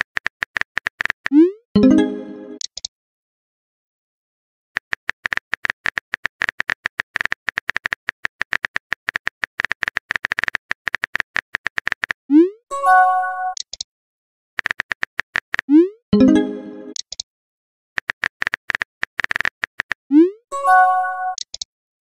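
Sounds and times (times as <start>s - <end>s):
keyboard typing clicks: 0.0s - 2.9s, 13.5s - 13.9s, 14.6s - 17.2s, 21.2s - 21.7s.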